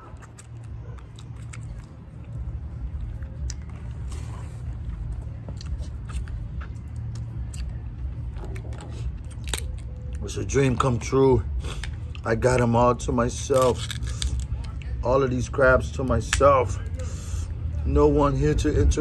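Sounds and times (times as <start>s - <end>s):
chewing: 0.0s - 10.2s
crab shells cracking: 8.5s - 10.2s, 13.5s - 14.9s.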